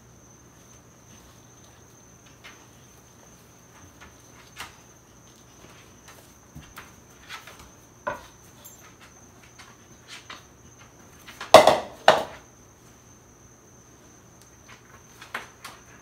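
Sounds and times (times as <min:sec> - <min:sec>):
clatter of kitchen things: 0:11.3 - 0:12.4
mixing bowl knocking on countertop: 0:11.5 - 0:12.4.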